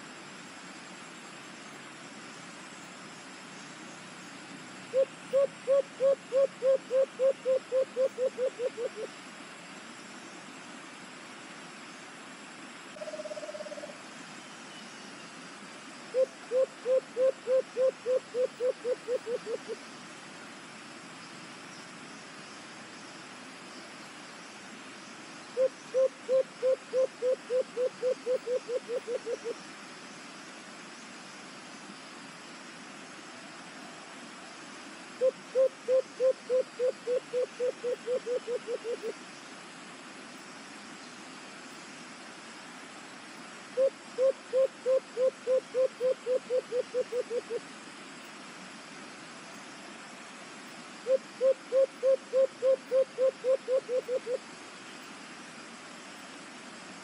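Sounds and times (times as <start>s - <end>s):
background hiss: 0.0s - 57.0s
dove cooing: 4.9s - 9.1s, 16.1s - 19.8s, 25.6s - 29.6s, 35.2s - 39.1s, 43.8s - 47.6s, 51.1s - 54.4s.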